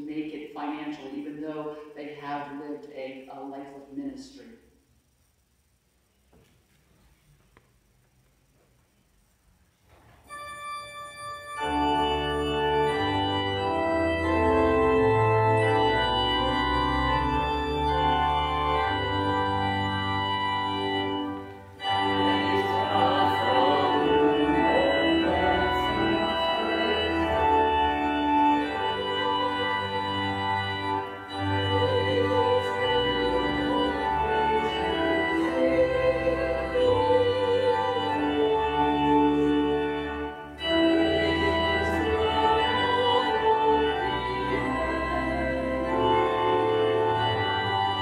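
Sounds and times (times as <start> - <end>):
organ playing sustained chords: 10.3 - 48.0.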